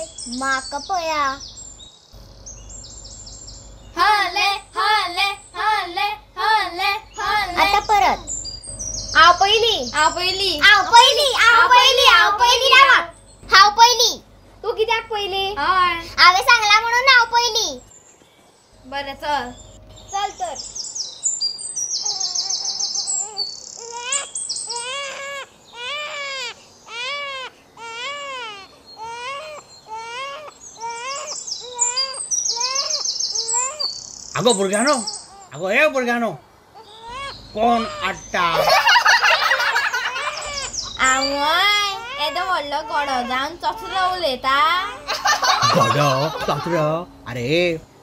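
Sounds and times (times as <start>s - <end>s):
baby crying: 22.0s - 33.9s, 36.8s - 46.7s.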